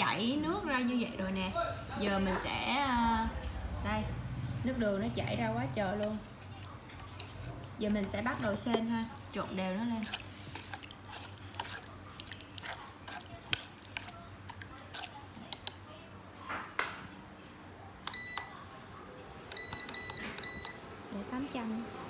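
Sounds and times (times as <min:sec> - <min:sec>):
electronic beeps of cooktop: 0:18.0 - 0:18.7, 0:19.5 - 0:21.6.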